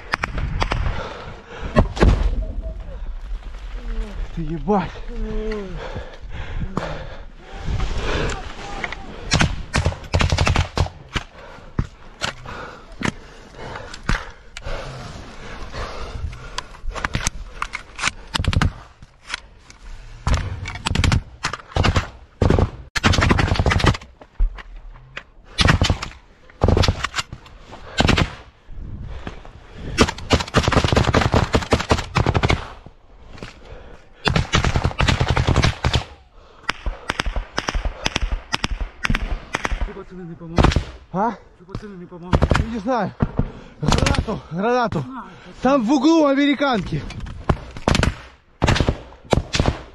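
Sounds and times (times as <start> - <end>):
automatic gunfire: 9.3 - 10.9.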